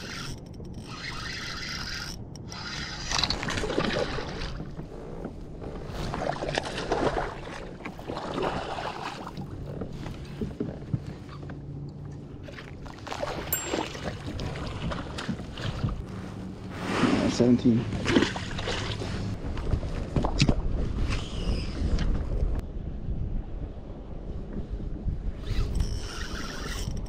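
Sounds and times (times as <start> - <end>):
water splashing and sloshing: 0.0 - 21.3
wind rumble on microphone: 0.0 - 27.0.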